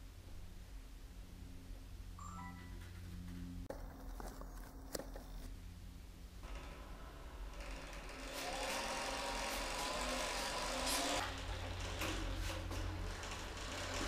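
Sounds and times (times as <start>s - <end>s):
motors whirring with a whine: 6.4s - 14.0s.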